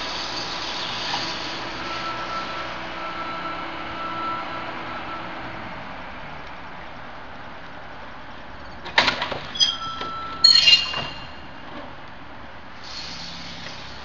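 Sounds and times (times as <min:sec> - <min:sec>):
high-pitched squealing: 0:09.6 - 0:11.4.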